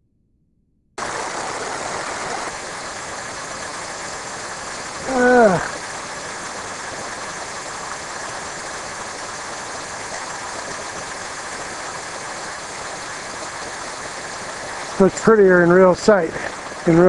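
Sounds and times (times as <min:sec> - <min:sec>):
stream rushing over rocks: 0:01.0 - 0:17.0.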